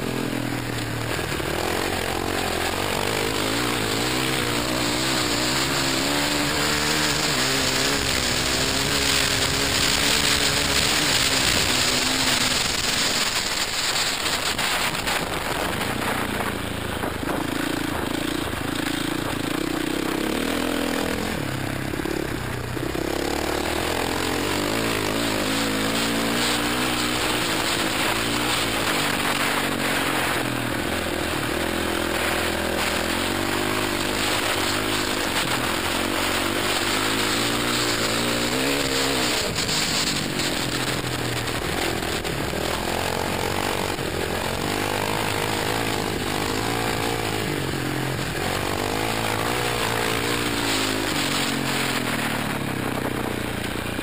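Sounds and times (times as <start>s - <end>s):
dirt bike engine racing: 0.0s - 54.0s
wind rush on microphone: 6.8s - 19.5s.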